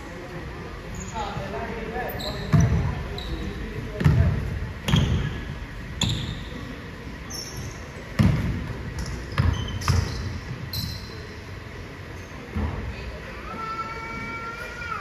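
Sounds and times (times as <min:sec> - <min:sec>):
basketball bouncing on hardwood floor: 0:04.0 - 0:04.3, 0:08.2 - 0:10.1.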